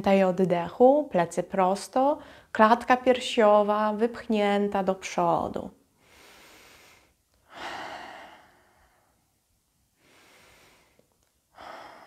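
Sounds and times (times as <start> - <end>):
woman breathing slowly: 2.2 - 2.5, 5.9 - 12.0.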